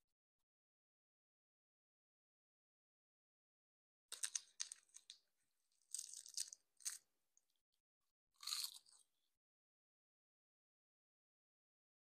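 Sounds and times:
crunchy food being chewed: 5.8s - 7.0s, 8.4s - 9.1s.

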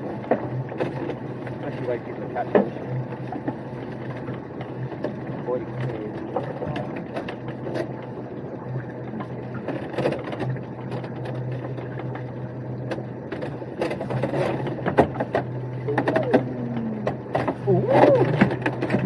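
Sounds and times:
boat machinery humming: 0.0s - 19.0s
rope and pot clattering: 13.4s - 19.0s.

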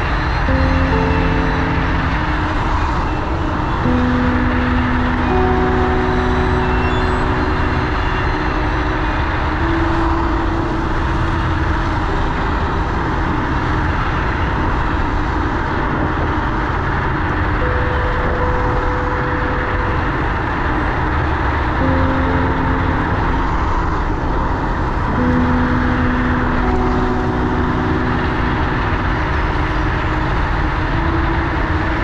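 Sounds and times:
faint steady tones: 0.0s - 32.0s
road noise: 0.0s - 32.0s
wind rushing on microphone: 7.6s - 21.8s.

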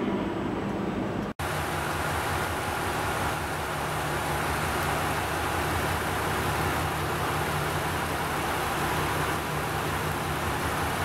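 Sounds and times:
diesel engine idling: 1.4s - 11.0s.

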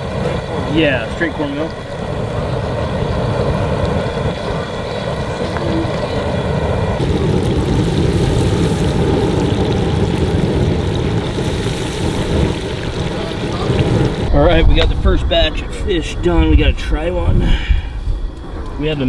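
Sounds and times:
oil bubbling: 0.0s - 14.8s
gas burner rushing: 0.0s - 19.0s.

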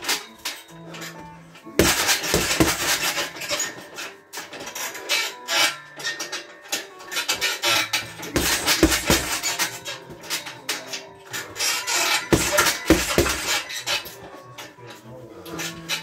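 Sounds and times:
gloves punching heavy bag: 1.8s - 3.7s, 7.7s - 10.3s, 11.6s - 13.6s.

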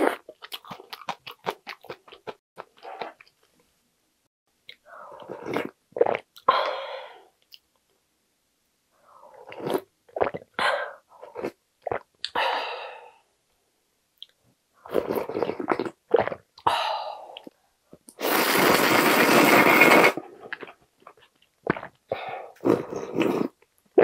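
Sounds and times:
person slurping broth: 5.1s - 6.2s, 9.3s - 10.4s, 14.9s - 16.4s, 18.2s - 20.7s, 21.7s - 23.6s.

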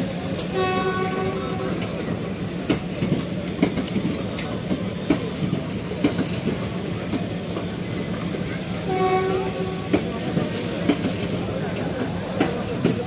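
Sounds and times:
train rumble: 0.0s - 13.0s
wheels clacking over rail joints: 9.5s - 13.0s.

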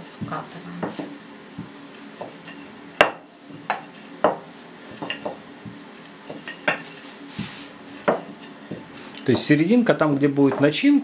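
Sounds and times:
rolling pin rolling dough: 0.0s - 10.8s
rolling pin knocking on board: 0.1s - 2.4s, 3.0s - 4.5s.

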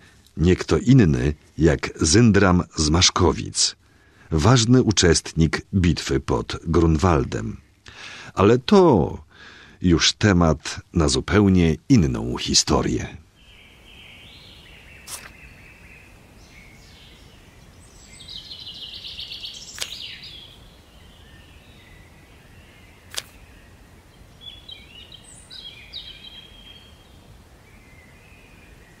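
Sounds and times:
low background hiss: 0.0s - 29.0s
birds singing and chirping: 12.4s - 29.0s
sharp clicks: 19.7s - 20.0s, 23.1s - 23.4s.

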